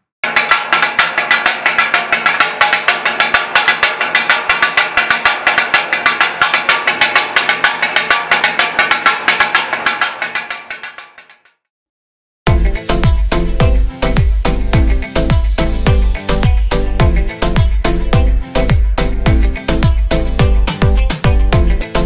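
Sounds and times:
metal spatulas striking griddle: 0:00.2 - 0:11.5.

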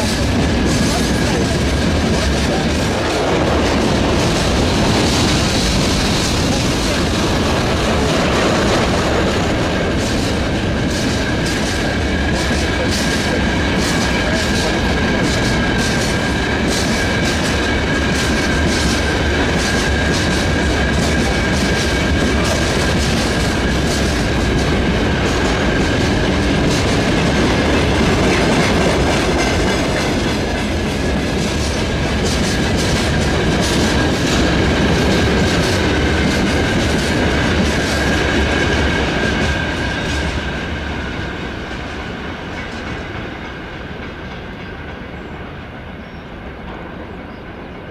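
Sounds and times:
train wheels rumbling on rails: 0:00.0 - 0:47.9.

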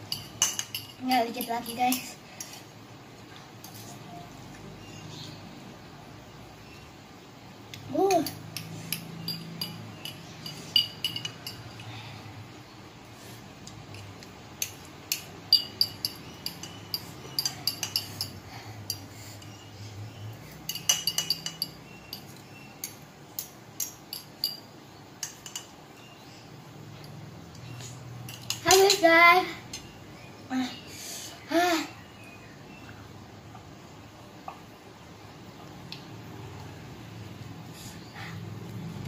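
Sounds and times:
metal utensil clinking on glass bowl: 0:00.0 - 0:02.5, 0:08.1 - 0:11.9, 0:14.6 - 0:19.6, 0:20.6 - 0:25.7, 0:28.3 - 0:29.0.

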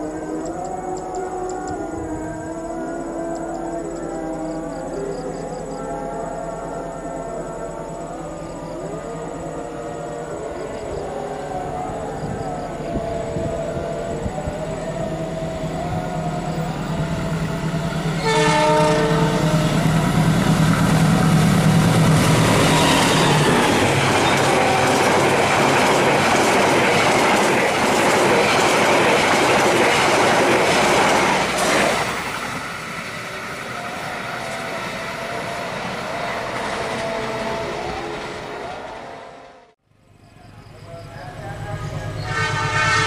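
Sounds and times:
locomotive engine humming: 0:00.0 - 0:39.8, 0:40.4 - 0:43.0
train horn blast: 0:17.2 - 0:25.5, 0:33.9 - 0:39.8, 0:41.5 - 0:43.0.

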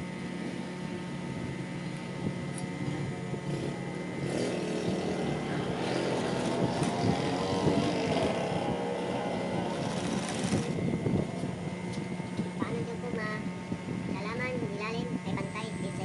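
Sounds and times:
sewing machine motor humming: 0:03.6 - 0:10.8
sewing machine needle running fast: 0:09.7 - 0:10.8.

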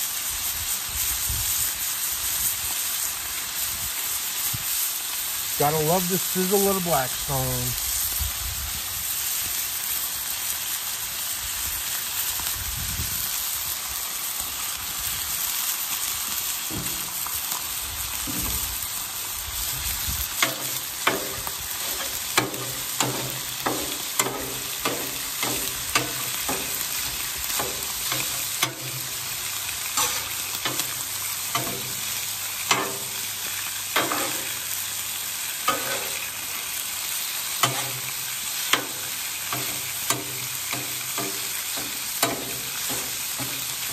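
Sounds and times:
meat sizzling on a griddle: 0:00.0 - 0:43.9
metal spatula scraping steel: 0:30.0 - 0:30.9, 0:34.0 - 0:34.5, 0:35.7 - 0:36.3, 0:37.6 - 0:38.0.

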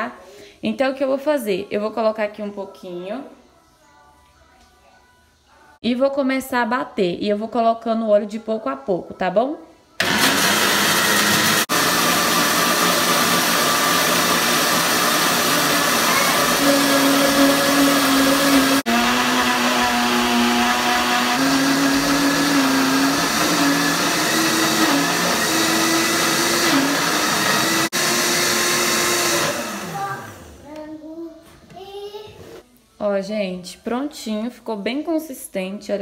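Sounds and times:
blender motor winding down: 0:10.0 - 0:30.6
electric blender motor humming: 0:10.0 - 0:30.6.

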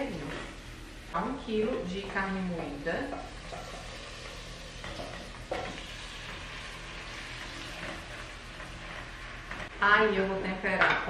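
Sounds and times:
meat sizzling in butter: 0:03.1 - 0:09.8
spatula stirring in pot: 0:03.1 - 0:09.8.

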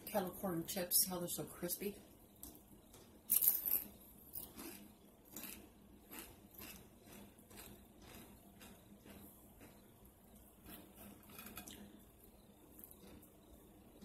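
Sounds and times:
crunching chips being eaten: 0:03.3 - 0:09.7, 0:10.6 - 0:12.0.

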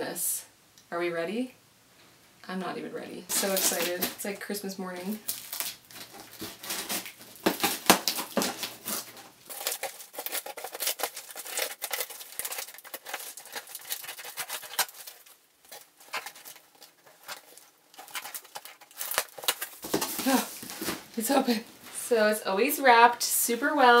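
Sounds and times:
scissors cutting packing tape: 0:03.3 - 0:04.2, 0:05.3 - 0:20.5
plastic tape crinkling: 0:03.3 - 0:21.7.

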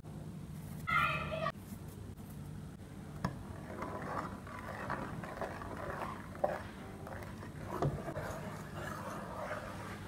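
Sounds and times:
spoon stirring in metal pot: 0:03.2 - 0:10.0.

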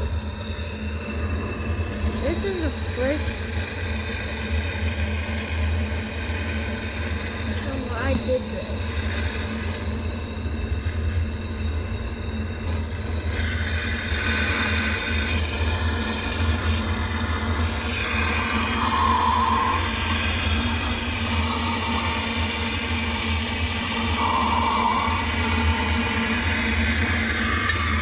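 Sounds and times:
propane torch flame hissing: 0:00.0 - 0:28.0.

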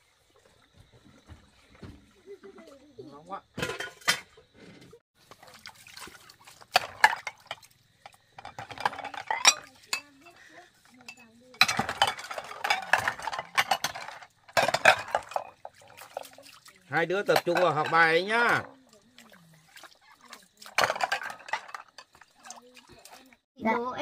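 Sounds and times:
water sloshing: 0:00.0 - 0:23.5
scrubbing: 0:04.8 - 0:23.4
bowls clinking together: 0:06.7 - 0:16.3, 0:17.2 - 0:18.7, 0:20.7 - 0:22.6.

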